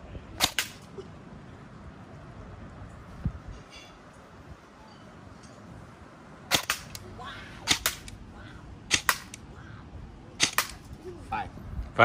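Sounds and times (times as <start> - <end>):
airsoft gun shots: 0.4 - 0.8, 6.5 - 7.0, 7.6 - 8.2, 8.9 - 9.4, 10.4 - 10.8.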